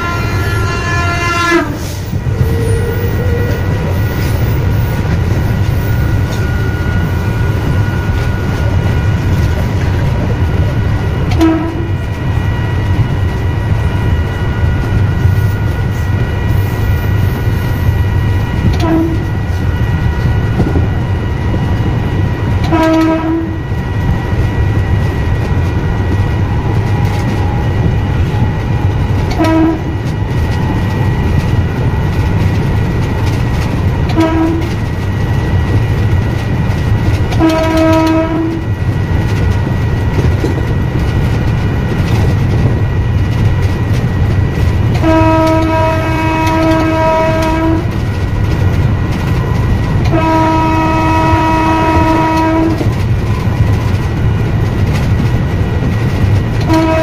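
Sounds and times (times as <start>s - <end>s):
train horn blasts: 0.0s - 4.3s, 11.3s - 12.5s, 18.5s - 19.8s, 22.6s - 24.0s, 28.4s - 30.2s, 34.1s - 34.9s, 37.3s - 38.8s, 44.9s - 48.0s, 49.4s - 53.8s, 56.6s - 57.0s
train running noise: 0.0s - 57.0s.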